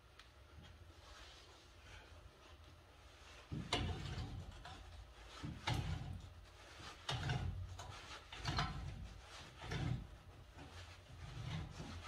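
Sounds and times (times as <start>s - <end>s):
metal scraping and grinding: 3.5s - 12.0s.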